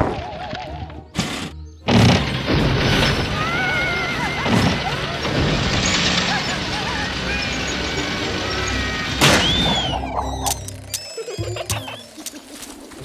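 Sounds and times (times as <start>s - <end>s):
loud crash: 1.9s - 9.8s
wobbling whistle-like tones: 7.3s - 12.5s.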